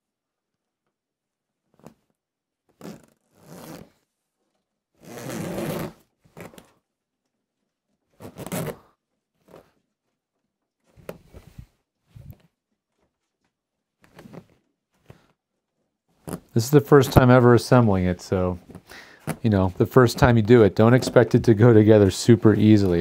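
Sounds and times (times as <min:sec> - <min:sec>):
zipper tugged on fabric: 0:02.7 - 0:04.0, 0:05.0 - 0:06.7, 0:08.1 - 0:09.8, 0:16.2 - 0:16.5.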